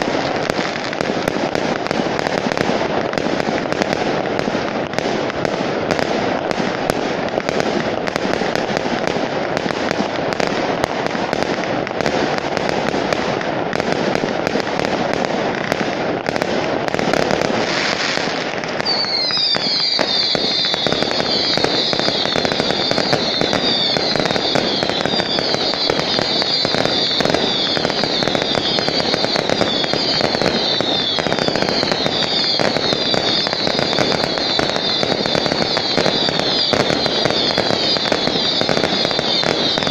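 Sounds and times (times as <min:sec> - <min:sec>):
fireworks crackling and popping: 0:00.0 - 0:39.9
shrill descending whistling: 0:18.8 - 0:25.6.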